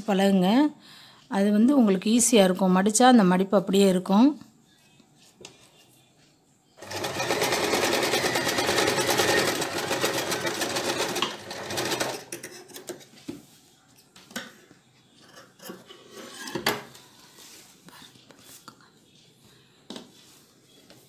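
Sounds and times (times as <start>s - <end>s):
electric sewing machine stitching: 6.8s - 12.4s.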